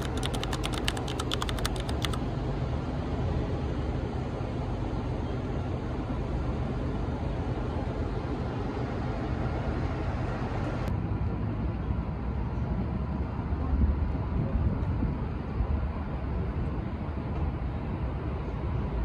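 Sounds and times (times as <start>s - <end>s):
low rumble of street traffic: 0.0s - 19.0s.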